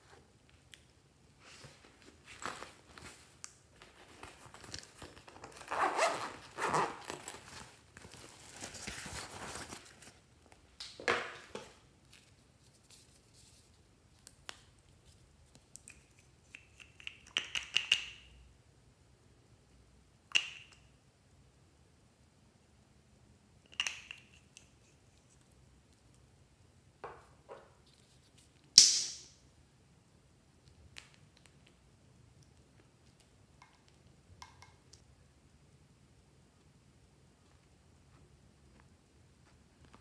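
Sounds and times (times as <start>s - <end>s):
bottle cap twisting open: 15.8s - 18.1s, 23.7s - 24.7s.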